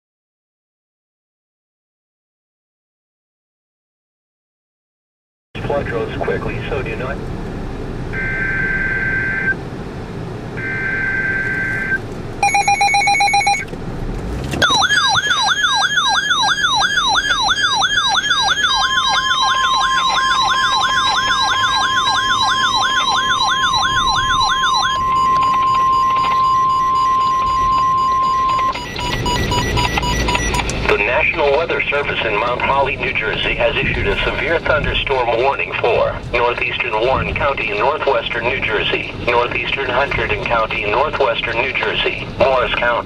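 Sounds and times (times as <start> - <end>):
steady warning alarm tone: 8.2 - 9.6, 10.6 - 13.6, 14.6 - 31.4
warbling siren alarm: 8.2 - 9.6, 10.6 - 13.6, 14.6 - 30.8.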